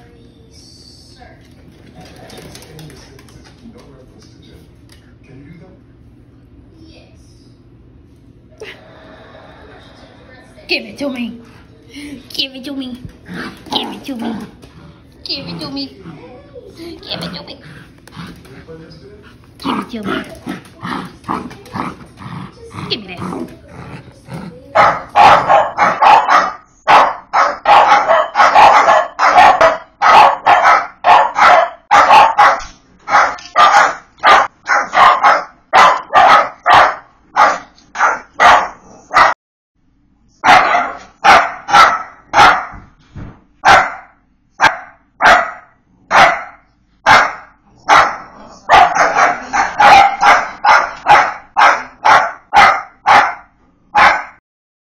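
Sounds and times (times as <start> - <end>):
dog barking loudly: 24.7 - 39.4, 40.4 - 42.8, 43.6 - 54.4.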